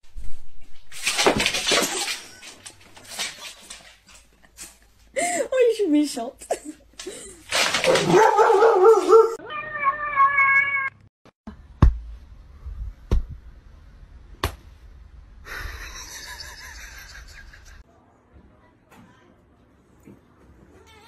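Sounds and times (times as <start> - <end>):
cat meowing: 9.4 - 11.0.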